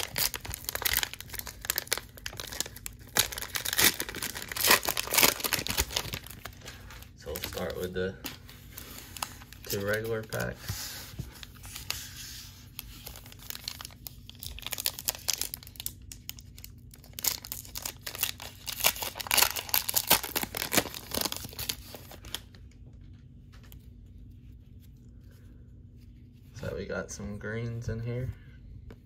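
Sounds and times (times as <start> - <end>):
foil wrapper crinkling and tearing: 0.0 - 10.6, 11.4 - 22.7.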